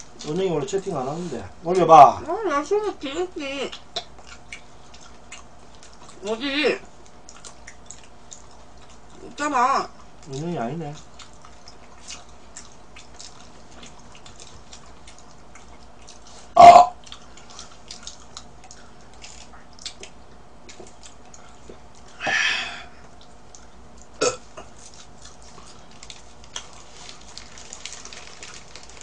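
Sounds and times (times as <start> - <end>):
loud burp: 16.6 - 17.0, 24.2 - 24.4.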